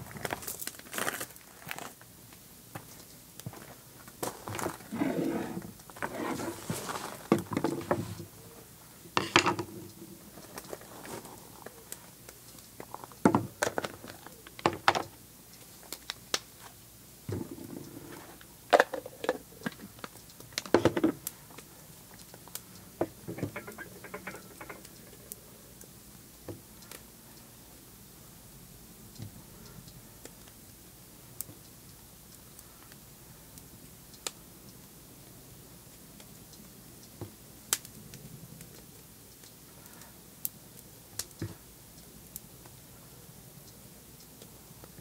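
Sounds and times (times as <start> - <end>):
rustling handling noise: 2.7 - 14.9, 15.6 - 25.4.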